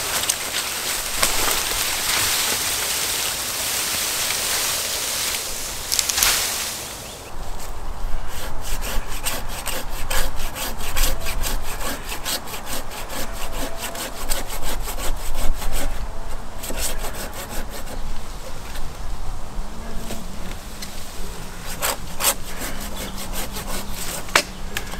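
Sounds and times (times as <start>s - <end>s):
hand saw cutting branch: 0.0s - 6.9s, 8.2s - 18.0s, 21.6s - 24.9s.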